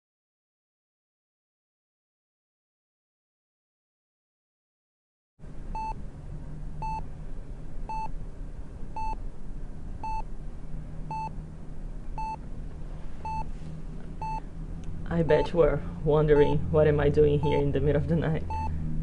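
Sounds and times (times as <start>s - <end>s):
low hum: 5.4s - 19.0s
heart monitor beeping: 5.7s - 6.0s, 6.8s - 7.0s, 7.9s - 8.1s, 9.0s - 9.2s, 10.0s - 10.3s, 11.1s - 11.3s, 12.2s - 12.4s, 13.2s - 13.5s, 14.2s - 14.4s, 17.4s - 17.7s, 18.4s - 18.8s.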